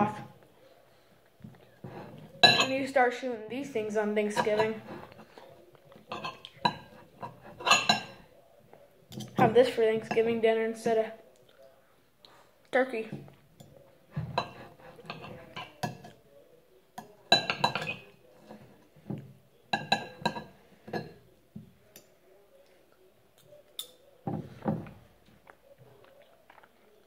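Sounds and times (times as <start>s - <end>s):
cutlery clinking on a plate: 2.3s - 2.8s, 6.0s - 8.2s, 9.1s - 10.3s, 13.6s - 16.2s, 17.0s - 21.2s.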